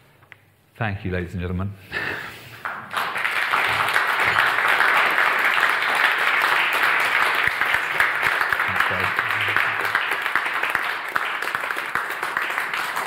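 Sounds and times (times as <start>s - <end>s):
audience applauding: 2.6s - 13.0s.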